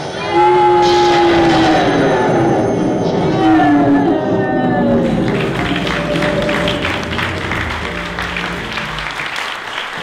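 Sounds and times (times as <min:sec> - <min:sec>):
slow melody of long held notes: 0:04.3 - 0:09.3.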